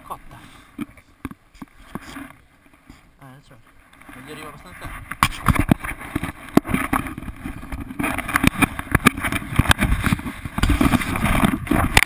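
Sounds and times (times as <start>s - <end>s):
camera handling knocks and rubbing: 4.8s - 12.0s.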